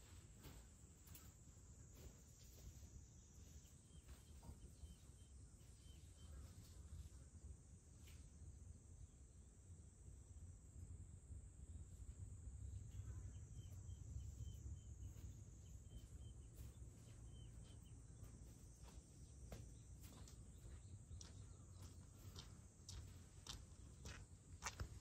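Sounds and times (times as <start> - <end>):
faint high hum: 0.0 - 25.0
bird chirping: 2.5 - 7.2, 12.6 - 24.8.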